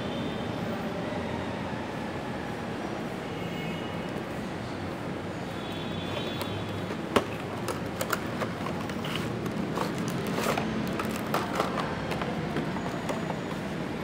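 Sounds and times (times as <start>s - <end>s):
card and plastic clicks and crackles: 6.1s - 13.7s.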